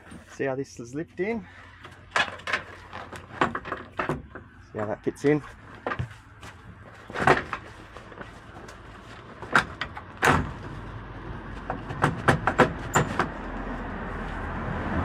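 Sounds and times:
metal knocks and clanks: 1.8 - 4.6, 5.7 - 8.3, 11.6 - 13.4.

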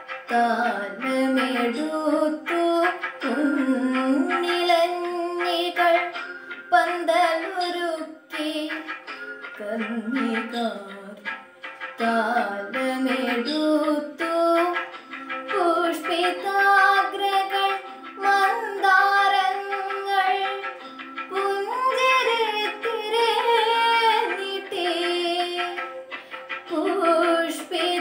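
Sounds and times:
girl singing: 0.3 - 8.9, 9.6 - 11.3, 12.0 - 14.9, 15.5 - 25.9, 26.7 - 28.0.

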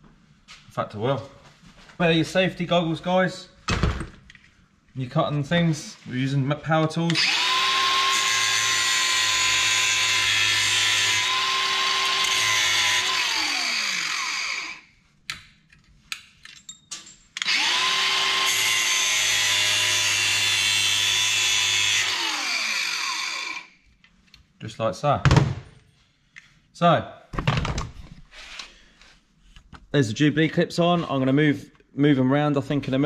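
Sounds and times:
angle grinder cutting metal: 7.1 - 14.8, 17.4 - 23.8.

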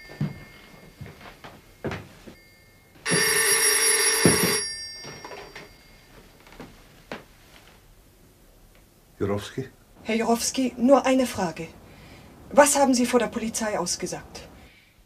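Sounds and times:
telephone bell ringing: 0.0 - 6.3.

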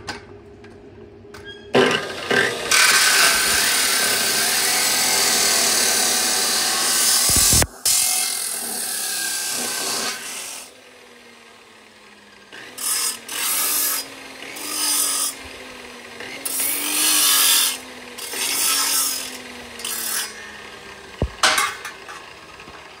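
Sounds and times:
saw motor spinning down: 1.8 - 21.4
chop saw cutting steel: 1.8 - 23.0
sharp metal clanks: 21.2 - 22.3.

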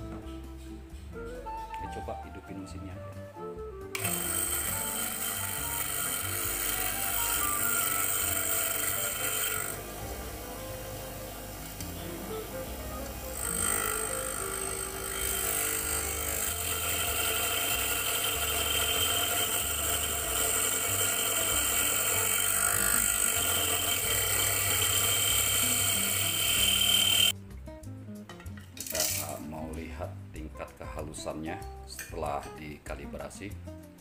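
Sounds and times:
coffee grinder motor whining: 3.9 - 27.4.

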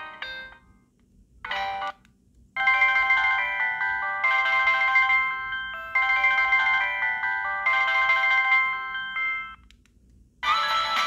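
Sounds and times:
polyphonic phone ringtone: 2.6 - 9.6, 10.4 - 11.0.

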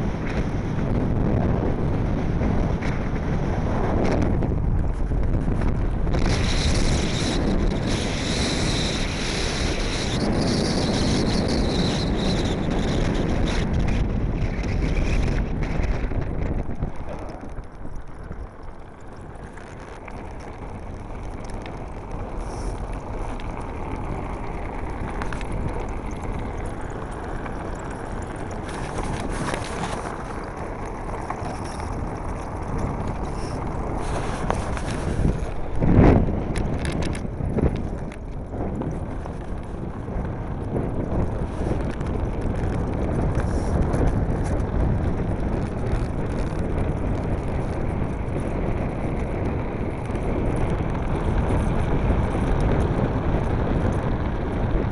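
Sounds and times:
land yacht rolling rumble: 0.0 - 54.9
wind buffeting microphone: 0.0 - 54.9.

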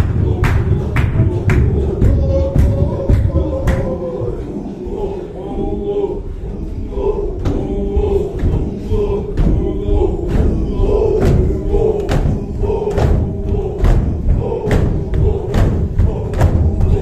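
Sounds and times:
rhythmic stamping or clapping: 0.0 - 5.1, 6.9 - 17.0
men chanting in unison: 0.0 - 17.0.

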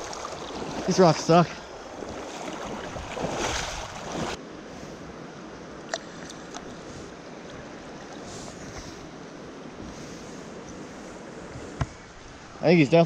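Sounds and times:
mountain stream rushing: 0.0 - 4.4.

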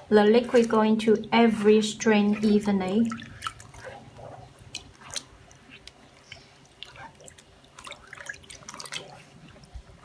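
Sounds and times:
wet fabric squelching in dye: 0.0 - 10.0
liquid splashing and dripping: 2.2 - 10.0.

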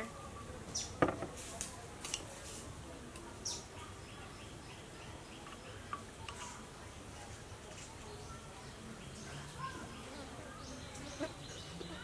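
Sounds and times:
birds chirping: 0.0 - 1.2, 3.4 - 6.7, 7.5 - 12.0.

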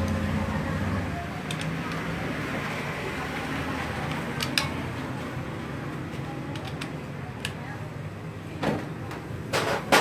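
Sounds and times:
socket wrench metal clicks: 1.4 - 2.1, 4.0 - 4.7.

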